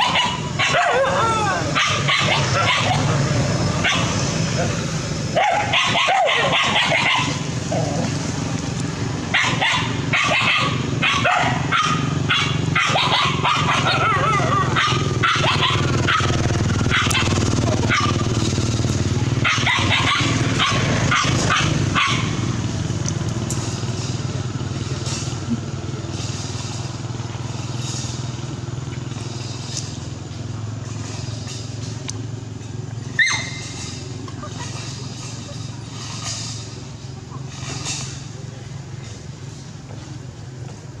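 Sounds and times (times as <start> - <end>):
dogs barking and yelping: 0.0 - 8.3, 9.2 - 18.5, 19.1 - 22.5, 33.1 - 35.8.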